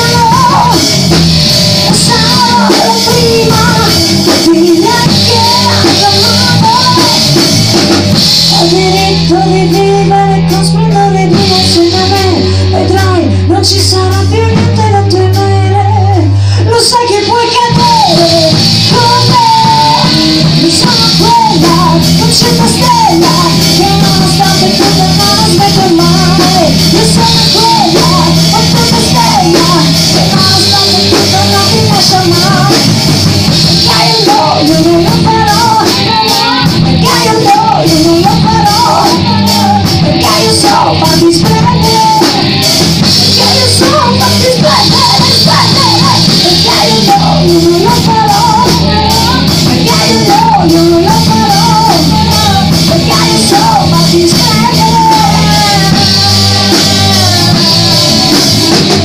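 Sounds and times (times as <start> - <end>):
bass guitar: 0.0 - 59.0
drums: 0.0 - 59.0
electric guitar: 0.0 - 59.0.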